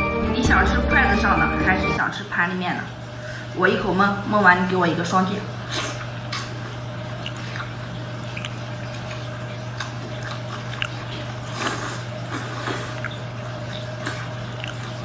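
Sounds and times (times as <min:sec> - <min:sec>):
low electrical hum: 0:00.0 - 0:15.0
slurp: 0:05.7 - 0:15.0
wet chewing and sucking: 0:05.7 - 0:15.0
mouth smacks: 0:07.2 - 0:09.2, 0:12.6 - 0:15.0.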